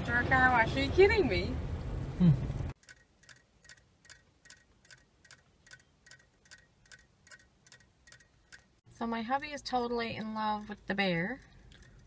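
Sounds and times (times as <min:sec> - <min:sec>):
toy ticking: 0:02.8 - 0:12.0.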